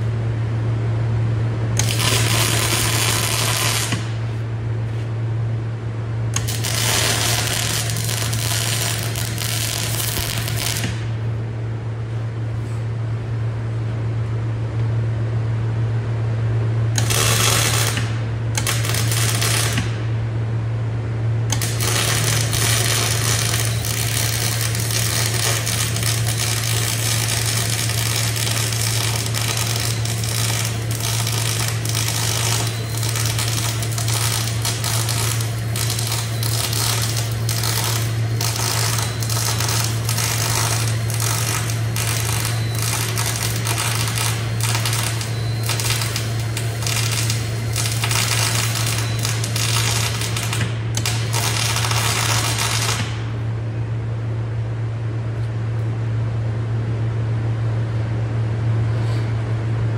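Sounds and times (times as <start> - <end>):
steady low hum: 0.0 - 59.9
welding arc crackling: 1.8 - 4.4, 6.3 - 11.3, 17.0 - 20.0, 21.5 - 53.4.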